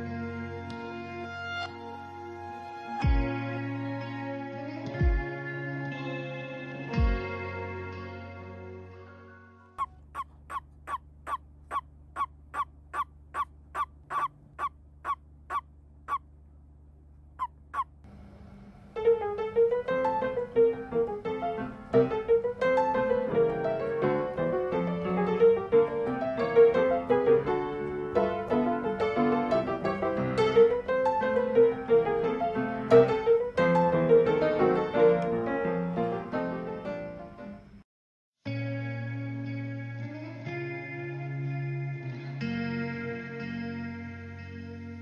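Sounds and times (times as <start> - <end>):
toad croaking: 9.8 - 16.3, 17.4 - 18.0
piano music: 19.0 - 37.7.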